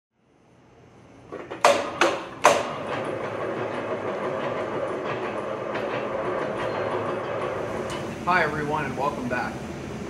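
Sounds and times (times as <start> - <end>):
rolling machine clattering rumble: 1.2 - 10.0
loud metallic bangs: 1.3 - 8.8.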